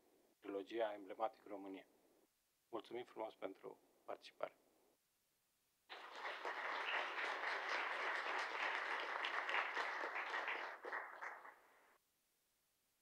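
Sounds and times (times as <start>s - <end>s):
audience applause: 5.9s - 11.9s.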